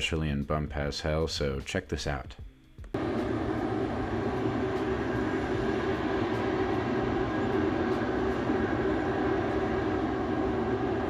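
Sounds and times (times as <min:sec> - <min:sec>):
steam venting loudly: 0:03.0 - 0:11.0.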